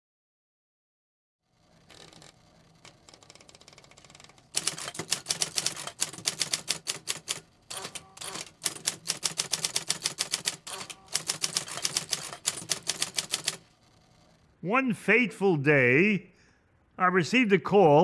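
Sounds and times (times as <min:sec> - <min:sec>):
typewriter typing quickly: 0:03.0 - 0:13.7.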